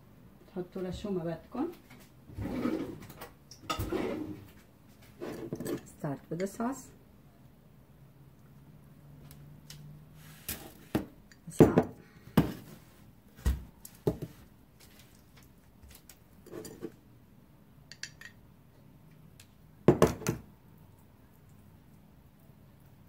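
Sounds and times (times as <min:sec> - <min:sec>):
metal spoon clinking on kitchenware: 0:17.9 - 0:18.4.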